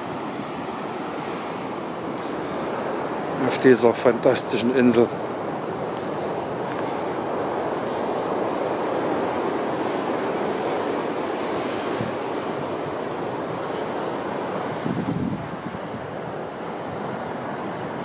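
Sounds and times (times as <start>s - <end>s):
wind: 0.0s - 18.0s
footsteps on path: 5.1s - 18.0s.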